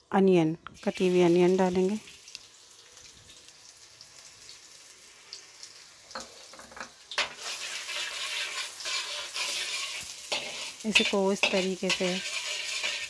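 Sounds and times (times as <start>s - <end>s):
onions sizzling in oil: 0.8s - 13.0s
spatula scraping a pan: 6.2s - 13.0s.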